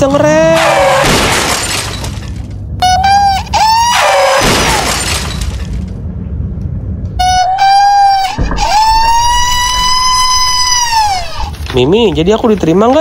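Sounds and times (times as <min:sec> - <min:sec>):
glass shattering crash: 0:00.6 - 0:02.5, 0:04.4 - 0:05.8.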